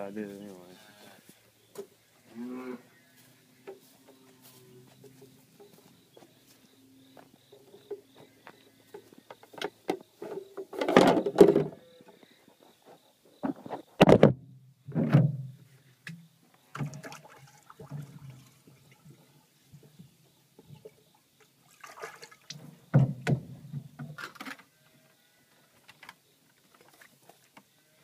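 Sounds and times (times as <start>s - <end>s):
calves bumping in trailer: 22.8s - 24.8s.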